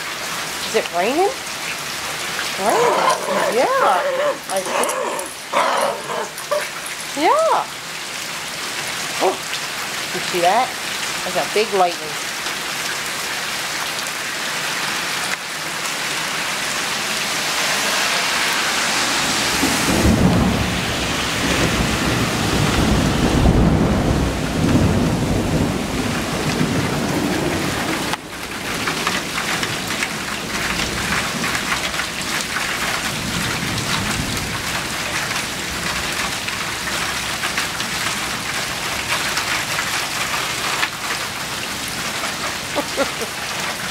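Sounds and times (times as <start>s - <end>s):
heavy rain pouring: 0.0s - 43.9s
low rumble of thunder: 19.6s - 28.1s.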